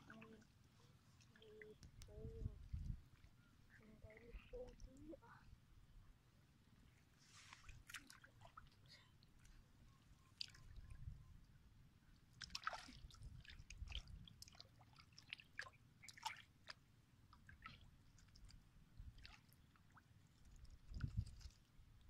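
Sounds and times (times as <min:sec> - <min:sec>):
water splashes and drips: 0:00.0 - 0:00.4, 0:07.4 - 0:09.6, 0:10.2 - 0:11.2, 0:12.2 - 0:22.0.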